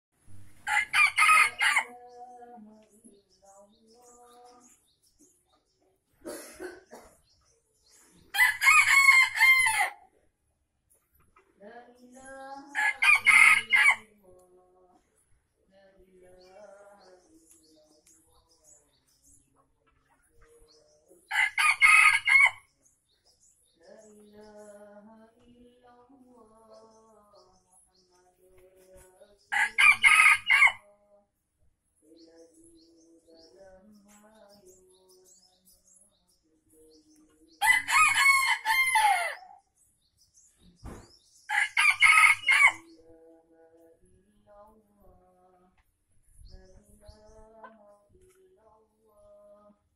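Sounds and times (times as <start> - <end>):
rooster crowing: 0.6 - 1.9, 8.3 - 10.0, 12.8 - 14.0, 21.3 - 22.6, 29.6 - 30.8, 37.6 - 39.5, 41.5 - 42.8.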